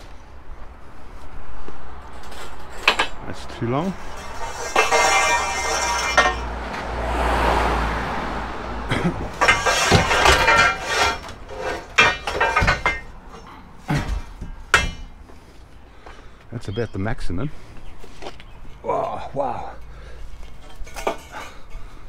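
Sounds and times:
scrap steel clanking: 2.0 - 6.8, 8.9 - 16.2, 19.9 - 22.0.

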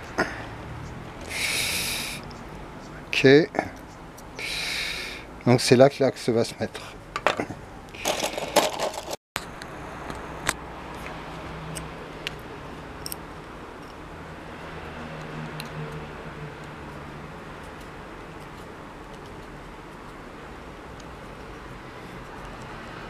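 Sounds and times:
steel parts clinking: 8.0 - 9.2.

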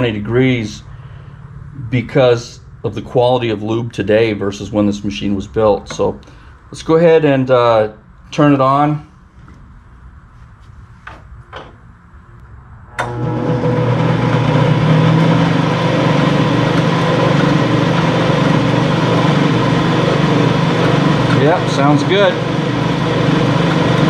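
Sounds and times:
lathe motor humming: 13.0 - 24.0.

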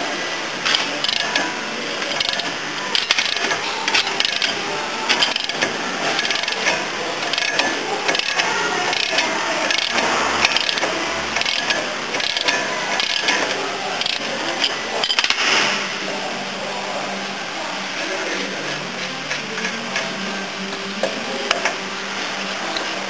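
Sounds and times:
ratchet wrench clicking: 0.7 - 1.4, 2.1 - 15.4.

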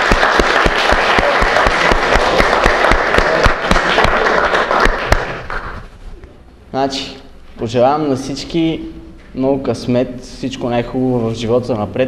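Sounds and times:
people applauding: 0.0 - 5.8.

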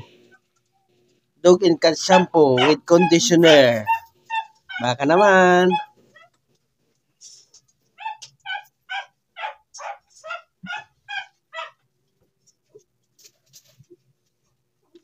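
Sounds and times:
dog yipping: 2.1 - 6.4, 8.0 - 11.8.

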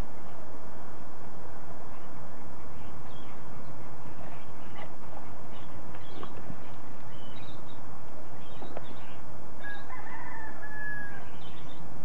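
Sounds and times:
rooster crowing: 9.6 - 11.6.

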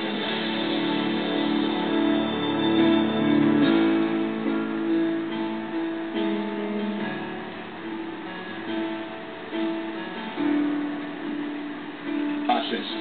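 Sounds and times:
slow instrumental music: 0.0 - 13.0.

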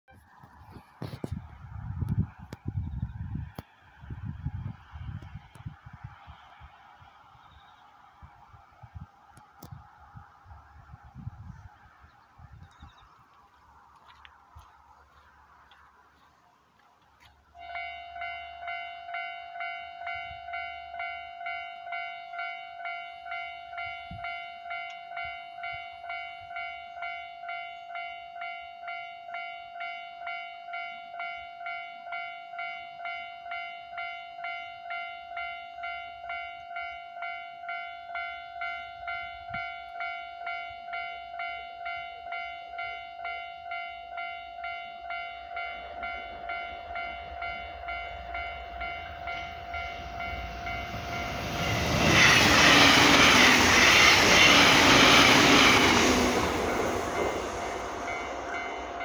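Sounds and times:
electric train passing: 0.2 - 59.0
level crossing bell ringing: 17.6 - 52.0.

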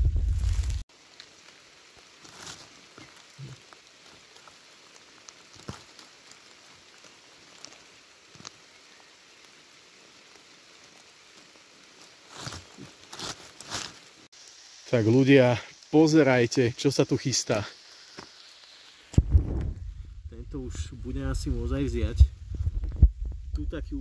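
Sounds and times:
low rumble on microphone: 0.0 - 0.8, 19.2 - 24.0
rustling: 0.0 - 8.8, 10.8 - 14.3
faint steady hiss: 0.0 - 24.0
raindrops ticking on leaves: 0.1 - 19.3.

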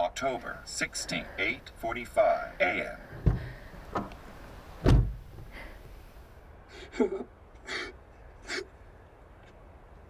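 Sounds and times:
person gasping breaths: 3.1 - 3.9, 5.4 - 6.1
heavy thump: 3.1 - 6.0.

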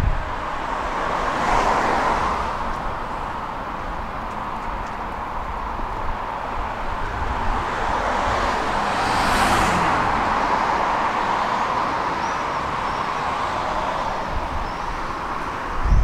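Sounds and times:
steady traffic hum: 0.0 - 16.0
car passing close by: 0.6 - 3.6, 6.4 - 15.6.

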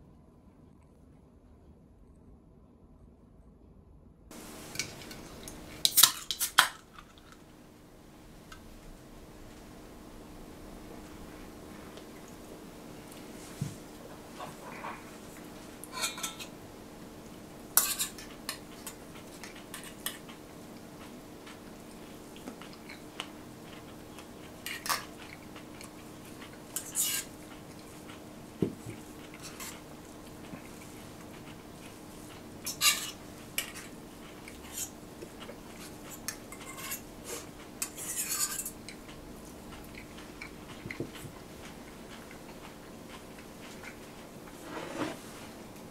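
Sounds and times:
faint steady hum: 0.0 - 45.9
utensils clinking on steel bowls: 15.8 - 16.6, 17.7 - 20.3, 32.6 - 35.0, 37.8 - 39.0.

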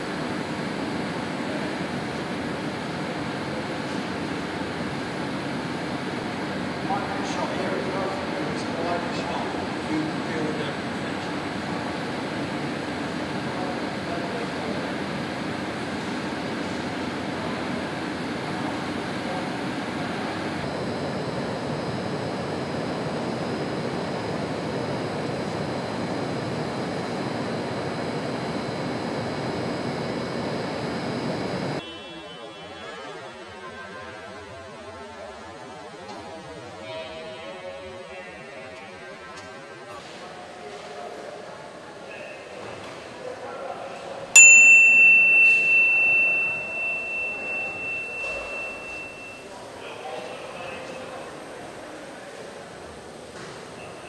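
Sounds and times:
faint high whine: 0.0 - 31.8, 44.4 - 51.7
machinery and air noise: 0.0 - 31.8, 43.5 - 54.0
faint factory noise: 0.0 - 54.0
high ringing ding: 44.4 - 49.6.

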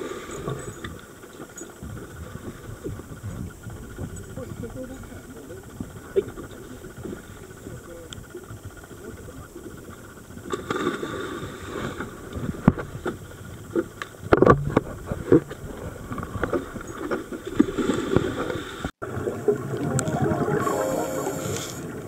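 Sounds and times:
wind and water rushing: 17.9 - 22.0.

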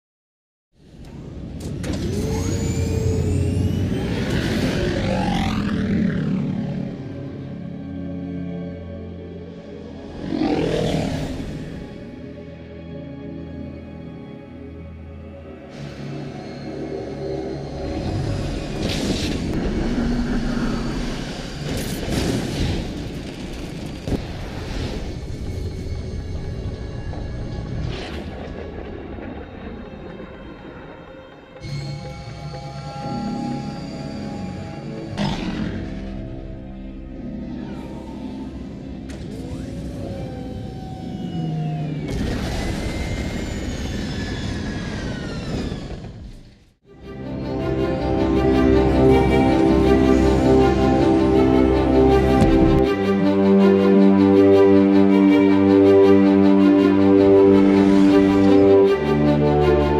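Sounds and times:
thruster rush: 1.9 - 7.8
starship engine low rumble: 25.1 - 46.2.

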